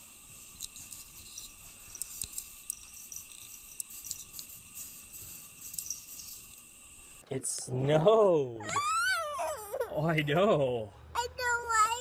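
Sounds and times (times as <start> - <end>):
crackles and scratches: 0.2 - 6.9.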